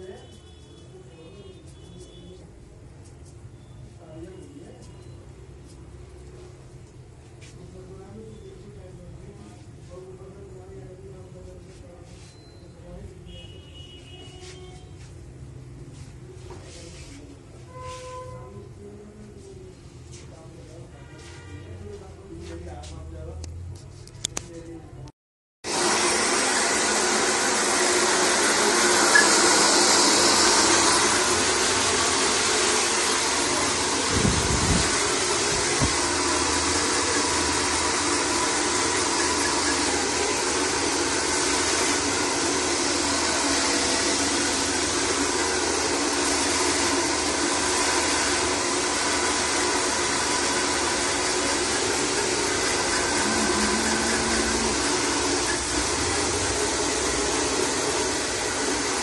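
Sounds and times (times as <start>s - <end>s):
hair dryer blowing: 25.7s - 59.0s.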